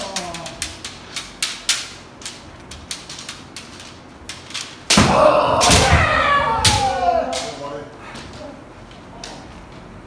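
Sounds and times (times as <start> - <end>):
bamboo swords clacking: 0.0 - 9.5
loud shout: 5.0 - 7.6.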